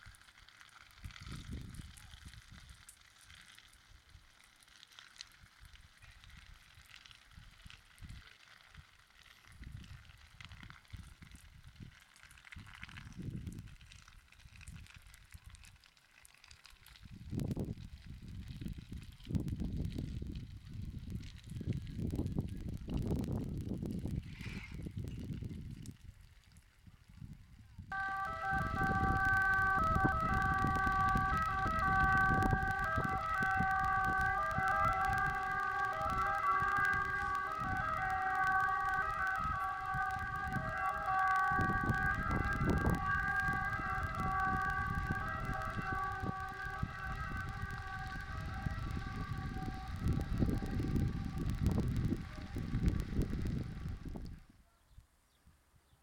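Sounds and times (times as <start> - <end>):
faint crackles: 0.0 - 55.2
wind rumbling on microphone: 0.8 - 2.9, 5.4 - 15.8, 16.8 - 54.6
two-tone emergency sirens: 27.9 - 54.5.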